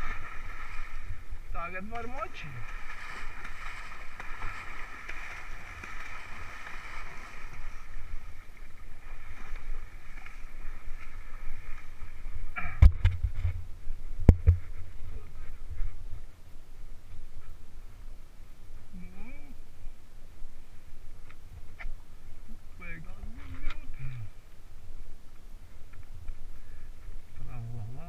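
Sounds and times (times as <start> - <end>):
horse splashing through water: 0.0 - 12.5.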